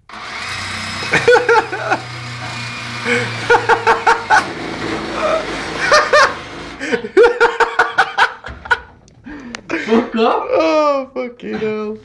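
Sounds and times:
person laughing: 0:01.0 - 0:02.3, 0:03.0 - 0:09.0.

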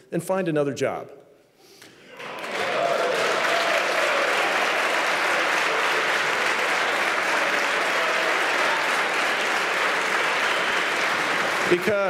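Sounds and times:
audience applauding: 0:02.1 - 0:12.0.

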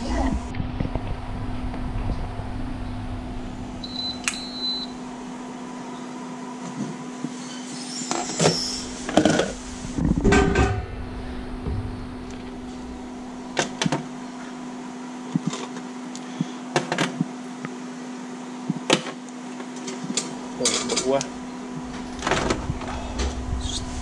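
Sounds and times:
electrical hum of cooktop: 0:00.0 - 0:24.0.

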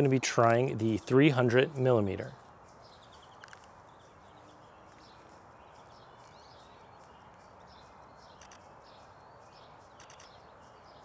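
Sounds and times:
low outdoor hiss: 0:00.0 - 0:11.0
small birds chirping: 0:00.0 - 0:11.0
sharp clicks: 0:08.3 - 0:08.7, 0:10.0 - 0:10.4.

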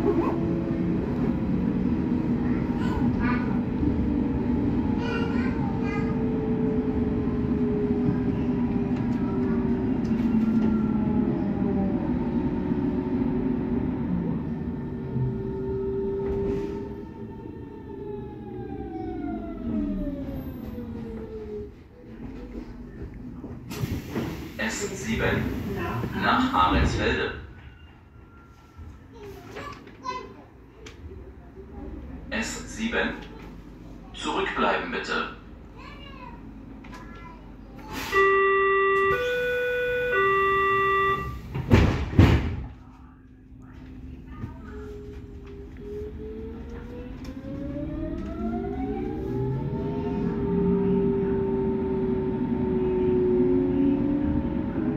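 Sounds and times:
electronic door warning tones: 0:38.1 - 0:41.5
sliding doors thudding shut: 0:41.4 - 0:42.7.

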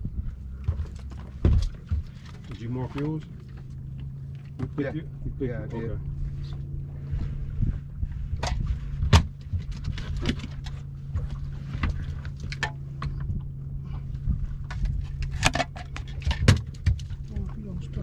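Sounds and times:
boat low hum: 0:00.0 - 0:18.0.

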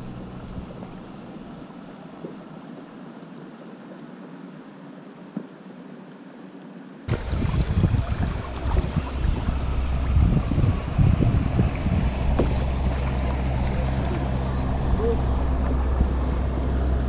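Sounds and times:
wind buffeting microphone: 0:07.1 - 0:17.0.

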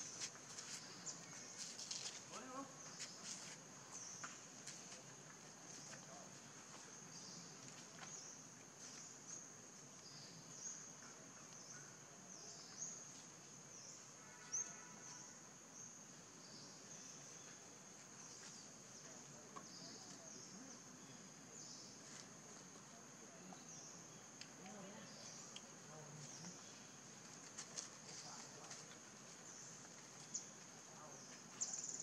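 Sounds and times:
high-pitched insect chorus: 0:07.0 - 0:32.0.

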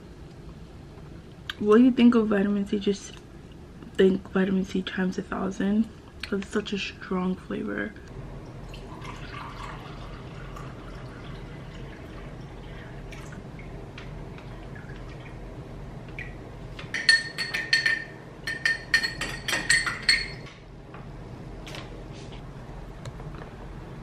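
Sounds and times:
liquid pouring into glass: 0:08.6 - 0:13.7
spoon clinking against glass: 0:16.9 - 0:20.5.

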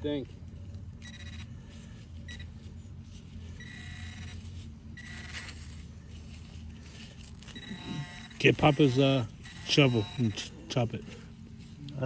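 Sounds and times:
low steady rumble: 0:00.0 - 0:12.0
pinpointer beeping: 0:01.0 - 0:01.5, 0:02.3 - 0:02.5, 0:03.6 - 0:05.6, 0:07.4 - 0:10.6.

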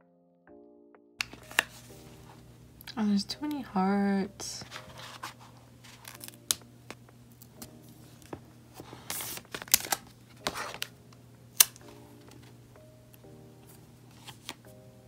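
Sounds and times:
paper and plastic sheets rustling: 0:01.2 - 0:02.4, 0:04.6 - 0:11.0, 0:14.1 - 0:14.6.

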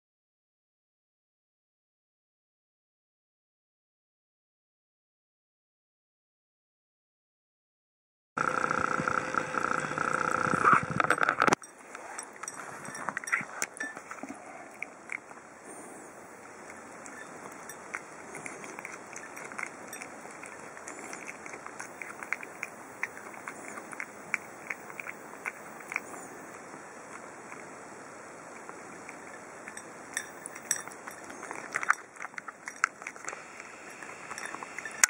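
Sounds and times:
cat chewing wetly: 0:11.5 - 0:35.0
faint steady hiss: 0:11.5 - 0:35.0.

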